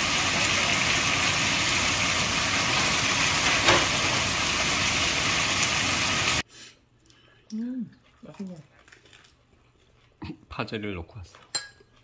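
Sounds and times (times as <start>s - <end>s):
meat sizzling in frying pan: 0.0s - 6.4s.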